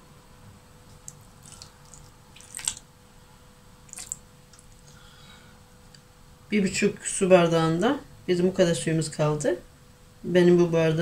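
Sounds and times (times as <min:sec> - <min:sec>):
water trickling and splashing: 0:01.0 - 0:02.9, 0:03.9 - 0:05.0.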